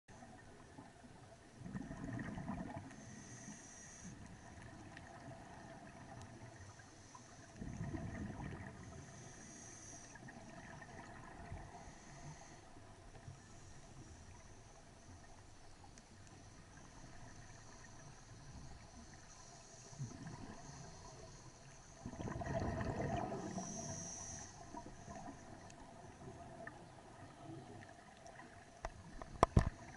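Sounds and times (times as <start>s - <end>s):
exhaled bubbles underwater: 0.2s - 3.5s, 4.2s - 9.5s, 10.1s - 12.2s, 19.9s - 21.4s, 22.0s - 29.9s
regulator hiss: 23.4s - 25.6s.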